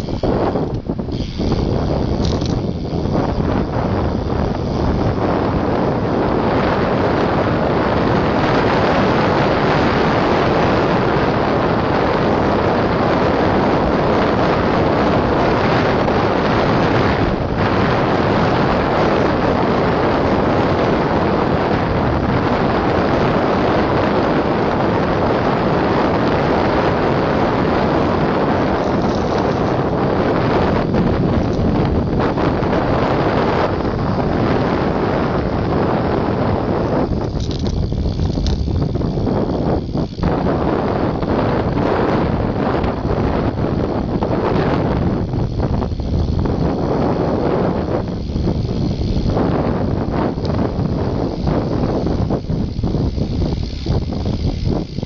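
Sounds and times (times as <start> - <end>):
wind rushing on microphone: 0.0 - 55.0.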